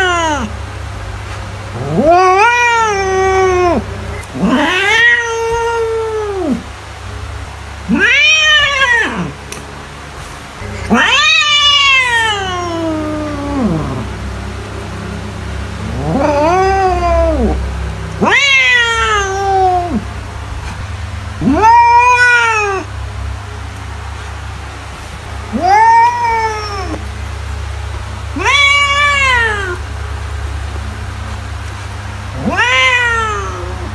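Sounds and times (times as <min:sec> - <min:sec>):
cat meowing: 0:00.0 - 0:00.5, 0:01.8 - 0:06.7, 0:07.9 - 0:09.4, 0:10.6 - 0:14.4, 0:15.8 - 0:20.8, 0:21.4 - 0:22.9, 0:25.5 - 0:27.1, 0:28.3 - 0:29.9, 0:32.3 - 0:33.9
steady low hum: 0:00.0 - 0:33.9.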